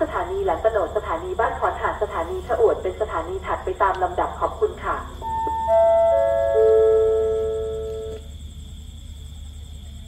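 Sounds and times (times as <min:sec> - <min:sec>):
descending public address chime: 0:05.2 - 0:08.2.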